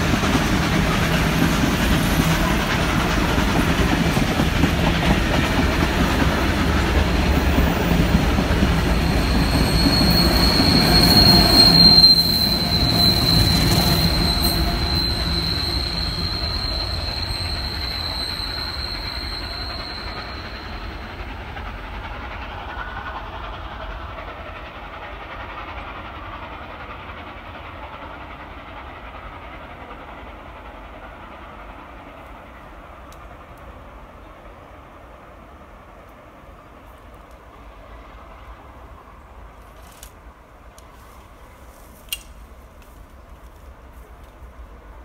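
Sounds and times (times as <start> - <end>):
train wheels rumbling on rails: 0.0 - 45.0
high-pitched wheel squeal: 8.8 - 21.2.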